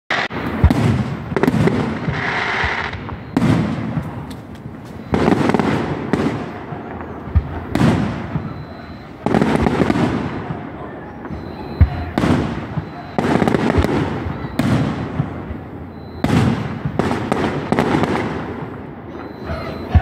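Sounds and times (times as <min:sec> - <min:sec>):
sharp firework cracks: 0:00.1 - 0:18.9
fireworks bursting with rumble: 0:00.1 - 0:20.0.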